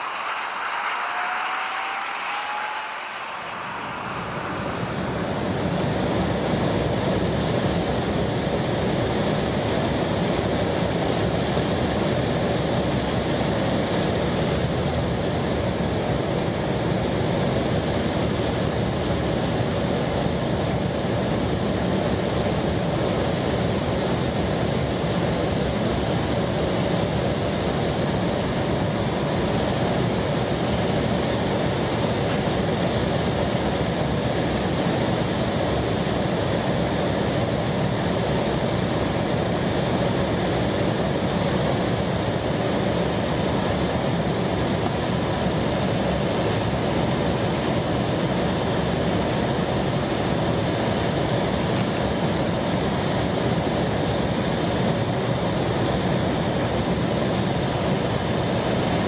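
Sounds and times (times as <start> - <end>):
jet airliner cabin noise: 0.0 - 59.0.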